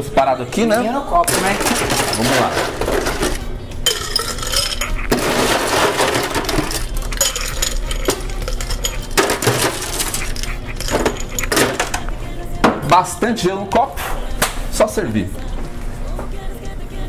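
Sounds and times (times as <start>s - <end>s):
ice cubes clinking into glass: 1.3s - 12.0s.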